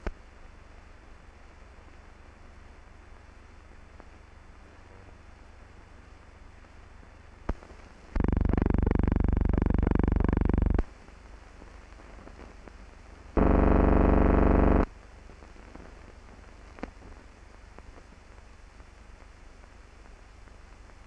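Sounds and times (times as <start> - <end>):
loud buzzing hum: 8.2 - 10.8, 13.4 - 14.9.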